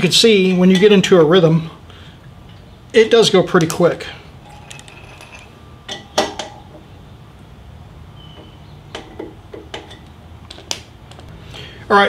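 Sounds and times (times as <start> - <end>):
sharp metal clicks and clinks: 4.4 - 6.5.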